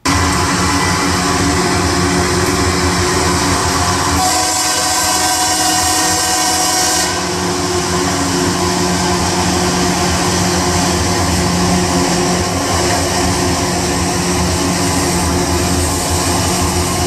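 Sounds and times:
train engine drone: 0.0 - 17.0
train rumbling past: 0.0 - 17.0
train horn: 4.2 - 8.2.

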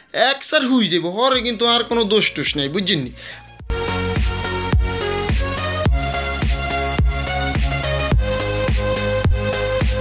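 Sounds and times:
electronic dance music: 3.8 - 10.0
kick drum beat: 5.9 - 10.0.

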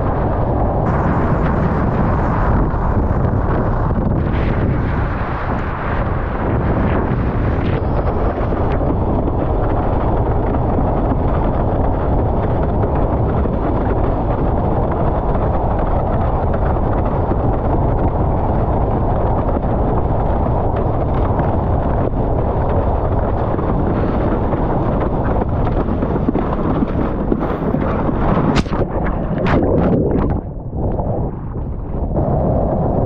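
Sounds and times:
wind buffeting microphone: 0.0 - 33.0
brief cracks: 28.5 - 29.9.

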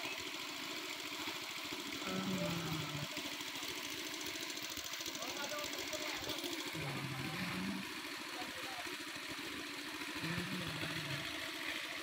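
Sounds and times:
engine idling: 0.0 - 12.0
short low tones: 10.2 - 11.3.

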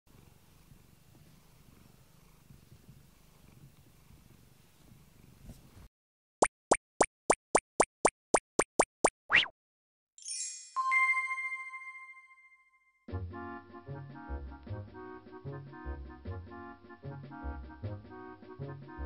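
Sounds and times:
cat purring: 0.1 - 5.9.

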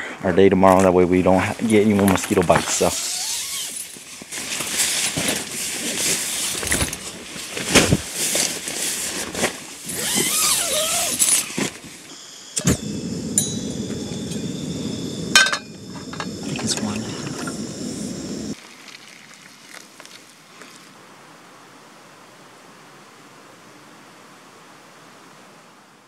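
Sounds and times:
camp stove hissing: 1.4 - 3.9, 9.8 - 18.6
tent fabric rustling: 1.4 - 12.1.

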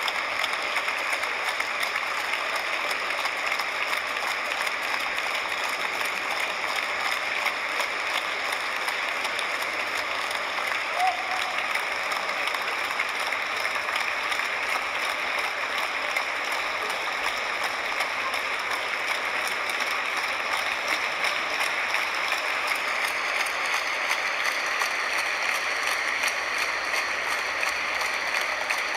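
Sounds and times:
audience applauding: 0.0 - 28.9.

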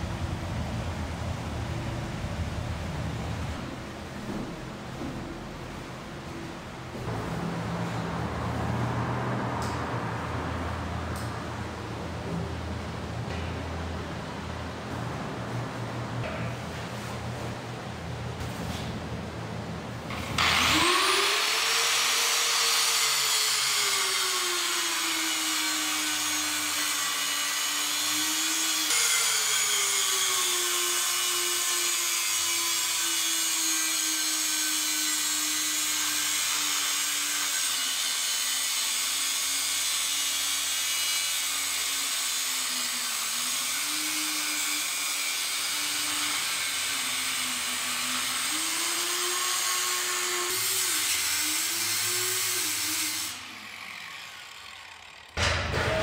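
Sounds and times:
angle grinder cutting metal pipe: 20.1 - 56.0.

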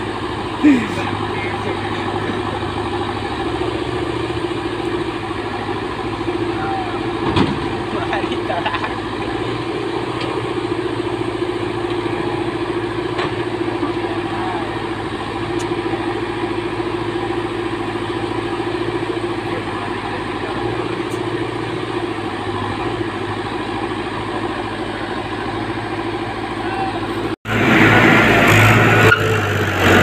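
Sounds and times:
backhoe diesel engine droning: 0.0 - 30.0.

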